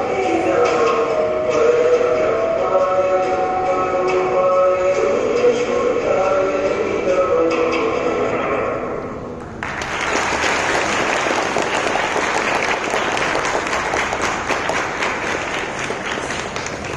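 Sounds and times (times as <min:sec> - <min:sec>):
audience applause: 0:09.6 - 0:16.9.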